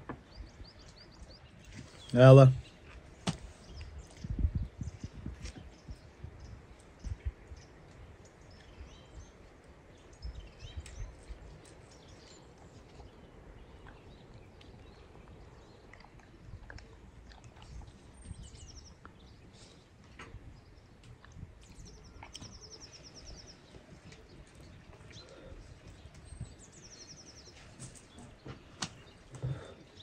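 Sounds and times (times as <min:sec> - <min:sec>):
songbird singing: 0:00.0 - 0:30.0.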